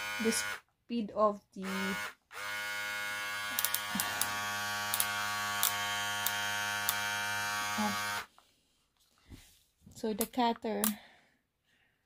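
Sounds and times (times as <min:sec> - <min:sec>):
hair clipper buzzing: 0:00.0 - 0:00.7, 0:01.6 - 0:08.3.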